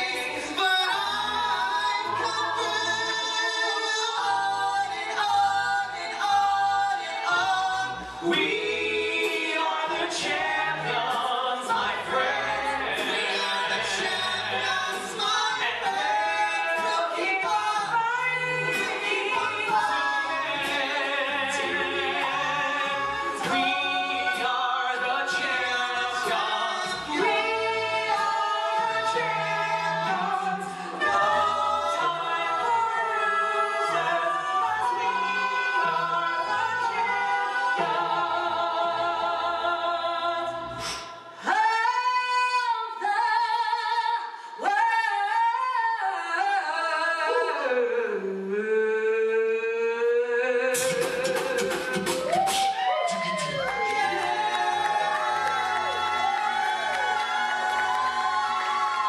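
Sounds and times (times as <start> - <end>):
beatboxed vocal percussion: 0.0 - 32.2, 40.5 - 41.5, 50.0 - 59.0
vocal group singing in harmony: 0.0 - 59.0.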